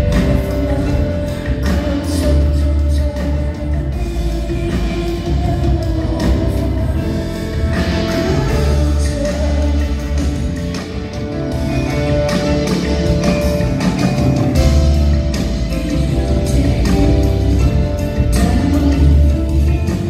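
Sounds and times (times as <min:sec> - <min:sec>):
woman singing: 0:00.0 - 0:10.7, 0:15.7 - 0:20.0
drum kit: 0:00.0 - 0:20.0
electric bass: 0:00.0 - 0:20.0
grand piano: 0:00.0 - 0:20.0.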